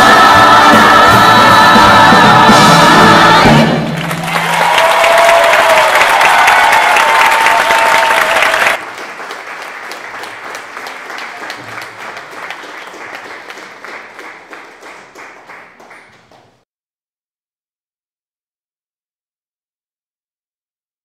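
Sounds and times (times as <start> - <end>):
audience applauding: 3.8 - 16.6.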